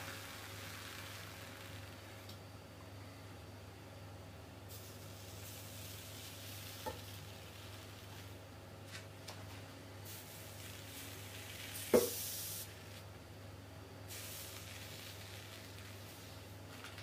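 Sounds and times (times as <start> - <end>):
hot blade sizzling and hissing: 4.7 - 8.4, 10.1 - 13.0, 14.1 - 16.4.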